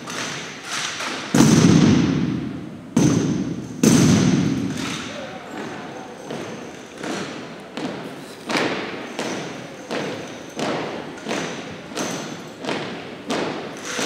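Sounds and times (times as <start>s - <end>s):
rifle thuds echoing in a gym: 0.0s - 14.0s.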